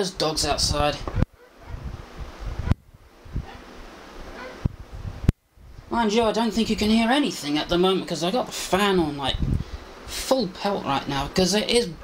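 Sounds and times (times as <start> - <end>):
electric fan running: 0.0 - 12.0.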